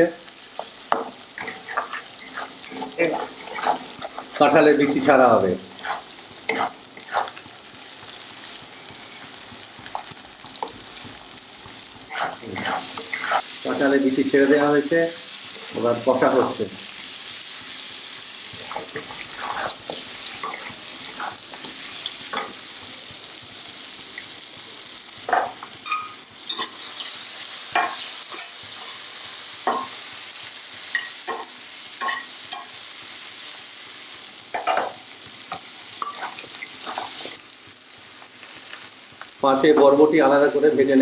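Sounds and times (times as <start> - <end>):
food sizzling in oil: 0.0 - 41.0
metal spatula scraping pan: 0.6 - 7.4, 12.1 - 13.5, 18.6 - 22.6.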